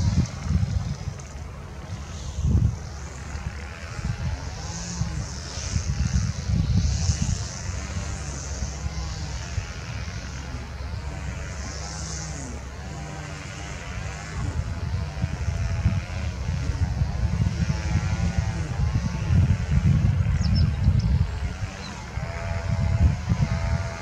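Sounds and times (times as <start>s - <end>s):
distant jet engines rumbling: 0.0s - 24.0s
wavering jet whine: 0.0s - 24.0s.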